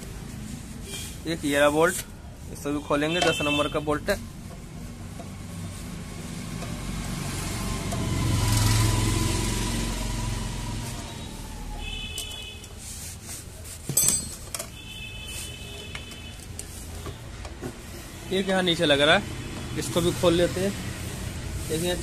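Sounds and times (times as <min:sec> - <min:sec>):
vehicle engine passing by: 0:05.3 - 0:11.8
metallic clink of hand tools: 0:13.9 - 0:14.6.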